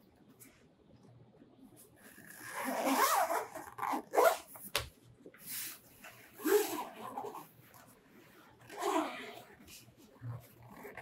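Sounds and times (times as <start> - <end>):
zipper being unzipped: 2.2 - 4.5, 6.4 - 7.5, 8.7 - 9.5, 10.6 - 11.0.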